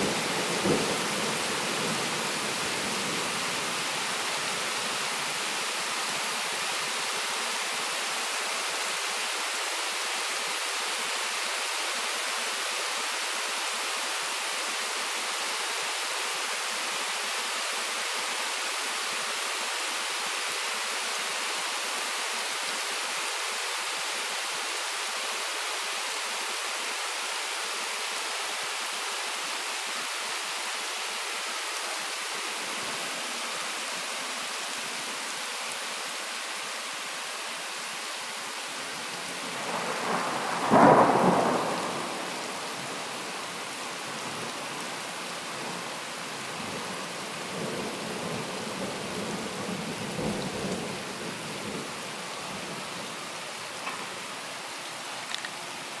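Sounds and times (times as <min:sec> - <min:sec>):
rain hissing: 0:00.0 - 0:56.0.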